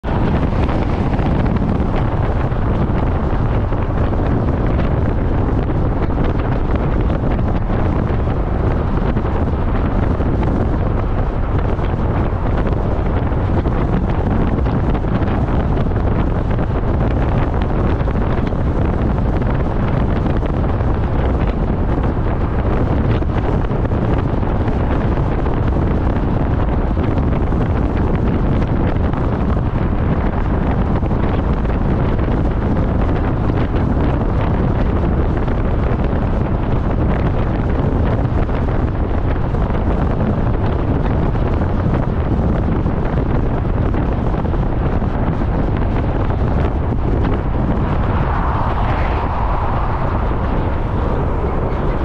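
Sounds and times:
wind rumbling on microphone: 0.0s - 52.0s.

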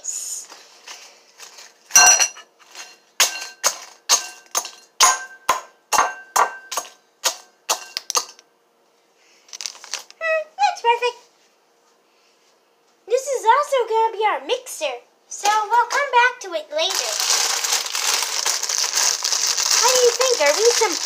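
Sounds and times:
glass bowl ringing: 2.0s - 2.4s
masher crunching chips: 9.5s - 10.2s, 16.8s - 21.0s.

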